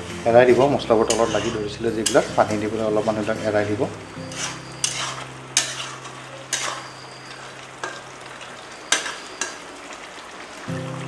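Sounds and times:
masala sizzling: 0.0s - 11.0s
metal spatula scraping pan: 0.4s - 8.2s, 8.8s - 9.6s.

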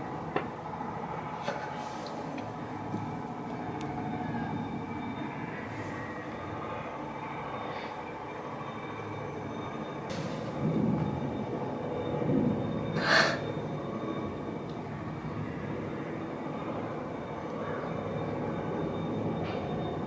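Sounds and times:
low rumbling background noise: 0.0s - 20.0s.

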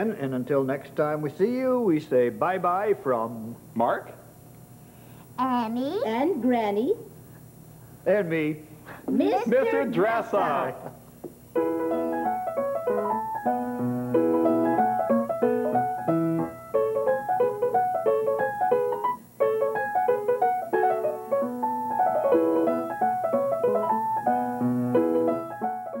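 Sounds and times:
bouncy piano tune with bass: 11.6s - 26.0s.

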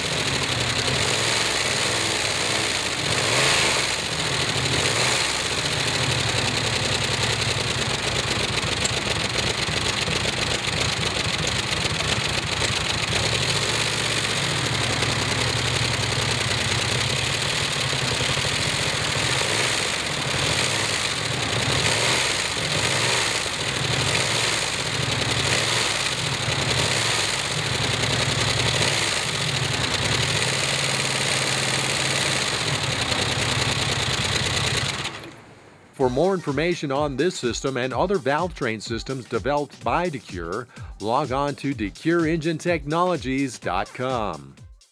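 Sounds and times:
engine running on a stand: 0.0s - 35.6s.

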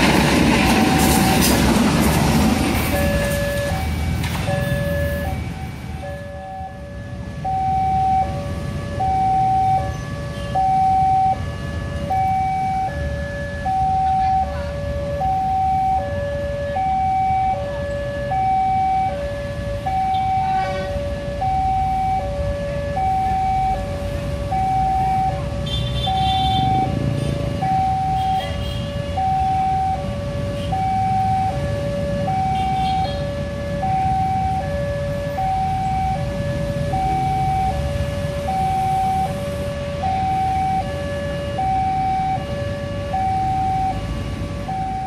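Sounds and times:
low rumble of road traffic: 0.0s - 45.0s
level crossing two-tone alarm: 2.9s - 45.0s.

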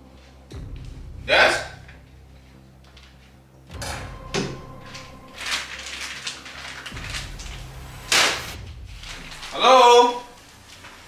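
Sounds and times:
plastic bag swish: 4.5s - 11.0s
plastic bag rustling: 4.6s - 11.0s.

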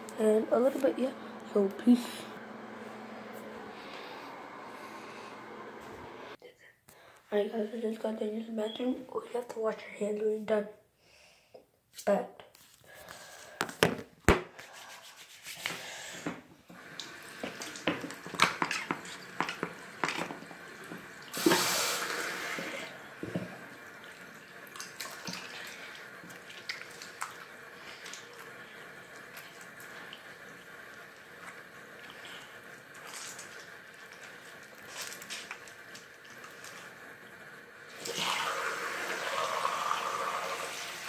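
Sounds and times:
water running from sink tap: 16.7s - 41.0s.

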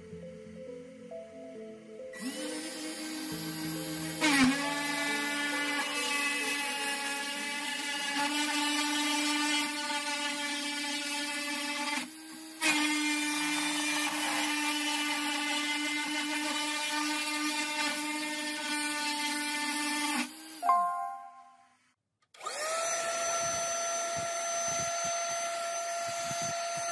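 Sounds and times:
engraving bit milling circuit board: 2.2s - 20.6s
router spindle motor whining: 2.2s - 20.6s, 22.4s - 26.9s.

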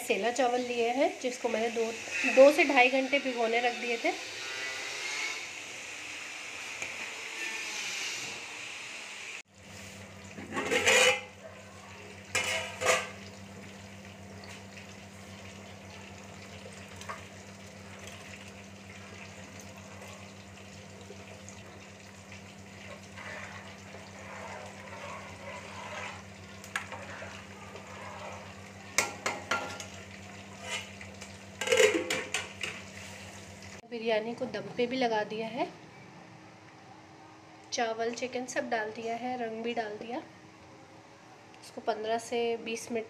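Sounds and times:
metal utensils clinking on pot: 10.5s - 11.3s, 12.3s - 13.2s, 29.0s - 30.0s, 31.6s - 32.8s.

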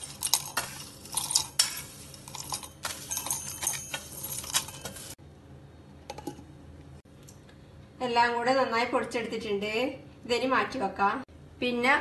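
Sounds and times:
spices rattling into metal jar: 0.0s - 5.2s.

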